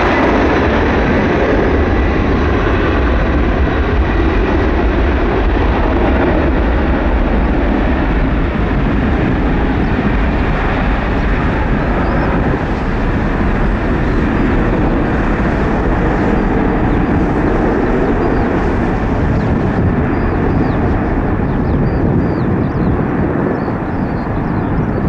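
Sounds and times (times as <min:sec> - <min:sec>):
jet engine noise: 0:00.0 - 0:25.0.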